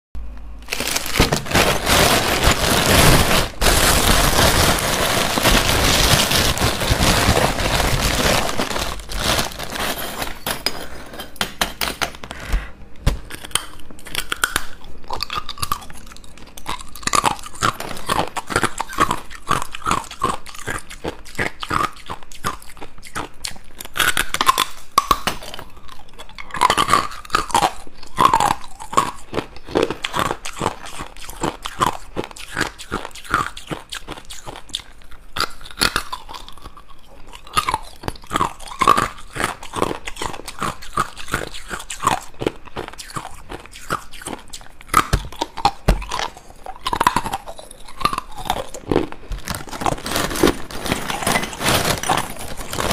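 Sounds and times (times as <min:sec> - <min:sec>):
ice cubes crunched between teeth: 0:00.6 - 0:10.4, 0:13.3 - 0:52.9
plastic bag crinkling: 0:00.6 - 0:10.5, 0:45.0 - 0:52.9.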